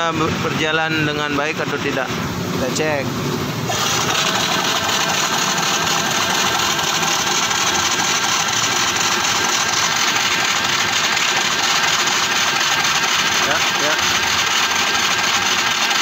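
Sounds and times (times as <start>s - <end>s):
scooter engine idling with rattle: 3.7s - 16.0s.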